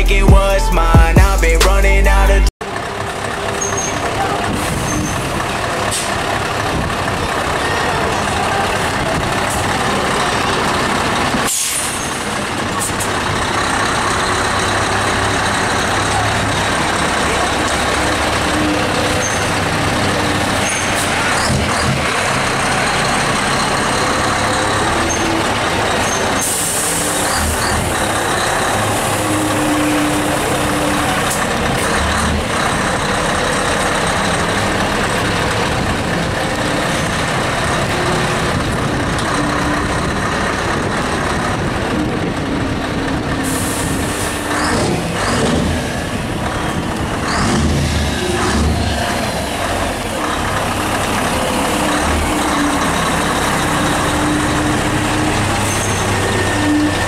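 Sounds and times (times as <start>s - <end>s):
truck diesel engine running: 0.0s - 57.0s
air brakes hissing: 11.4s - 13.1s, 26.0s - 31.4s, 43.4s - 45.4s.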